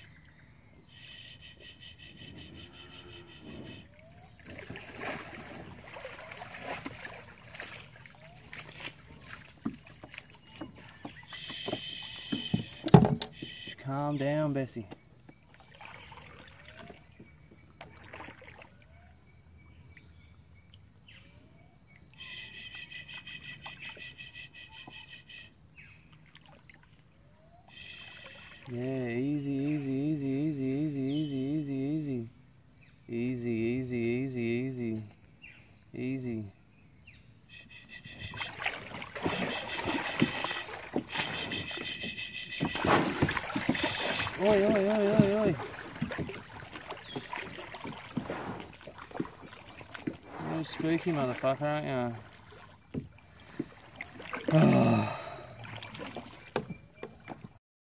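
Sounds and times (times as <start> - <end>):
water trickling and dripping: 3.9 - 13.8, 26.1 - 29.0, 38.3 - 57.5
knocks against hull: 8.8 - 13.8, 38.9 - 50.2, 52.9 - 54.8, 55.8 - 57.6
rapid pulsing trilling call: 22.2 - 25.5, 27.7 - 28.7, 37.5 - 42.9.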